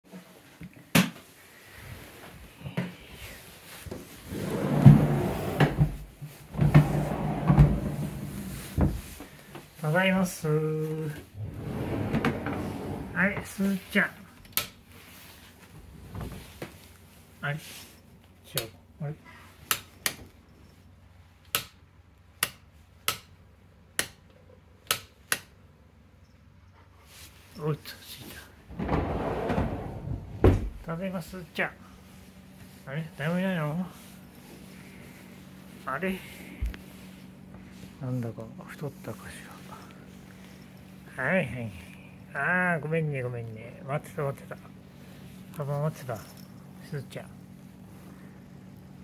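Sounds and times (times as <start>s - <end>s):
rustling: 1.6s - 10.0s
bumps and knocks: 28.7s - 30.9s.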